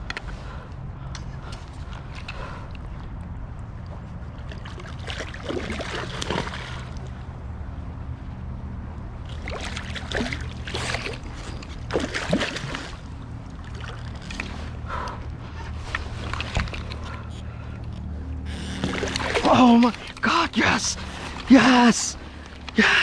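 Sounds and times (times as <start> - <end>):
steady low rumble: 0.0 - 23.0
fish splashing in water: 4.5 - 7.1, 9.3 - 14.6, 18.8 - 20.2.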